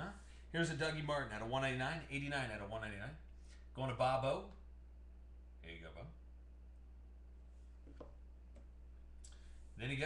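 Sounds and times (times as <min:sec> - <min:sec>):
low steady hum: 0:00.0 - 0:10.0.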